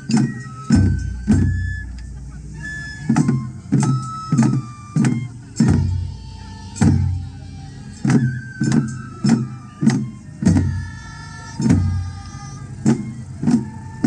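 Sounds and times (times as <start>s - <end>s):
taiko drums booming: 0.0s - 2.3s, 3.0s - 14.0s.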